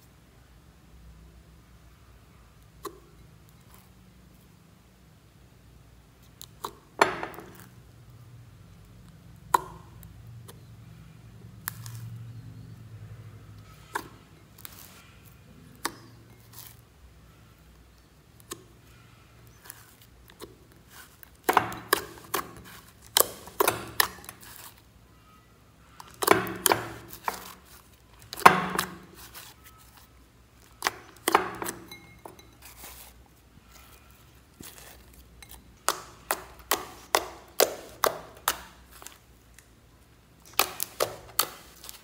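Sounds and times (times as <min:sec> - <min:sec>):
slime popping and clicking: 0:40.4 - 0:42.0.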